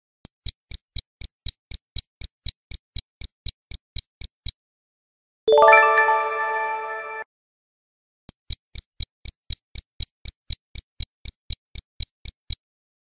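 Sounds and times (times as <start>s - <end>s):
stopwatch ticking: 0.3s - 4.6s, 8.3s - 12.7s
ringing chime: 5.5s - 7.2s.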